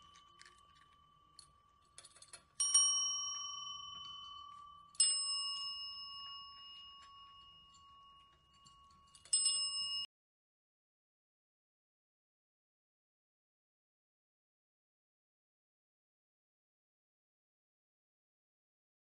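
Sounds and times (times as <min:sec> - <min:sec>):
desk bell ringing: 0:00.0 - 0:10.1.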